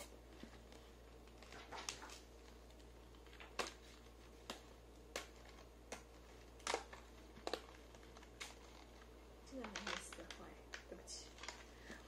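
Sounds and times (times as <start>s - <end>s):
cardboard book rustle: 0.3s - 10.5s.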